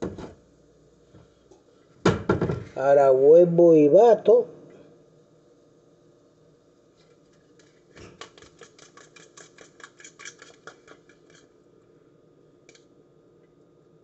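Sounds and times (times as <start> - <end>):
whisk clicking against bowl: 7.6 - 11.6.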